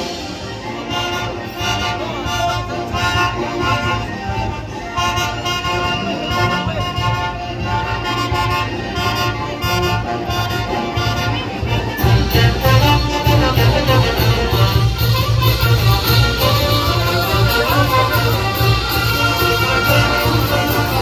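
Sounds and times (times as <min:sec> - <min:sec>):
band with fiddles and wind instruments: 0:00.0 - 0:21.0
pulsing bass beat: 0:12.0 - 0:21.0.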